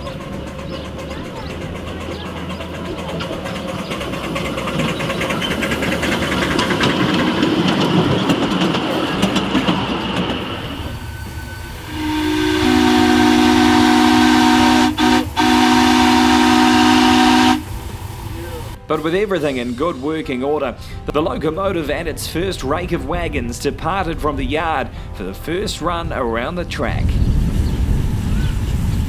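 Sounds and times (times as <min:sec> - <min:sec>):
steam hissing: 0:01.6 - 0:18.8
two-note steam whistle: 0:10.9 - 0:17.7.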